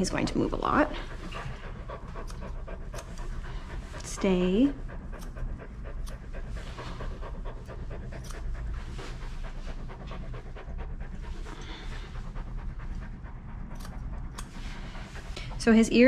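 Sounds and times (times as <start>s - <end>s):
dog panting: 0.0s - 16.0s
scissors snipping: 2.2s - 3.2s, 5.2s - 5.4s, 8.2s - 8.5s, 13.8s - 14.5s.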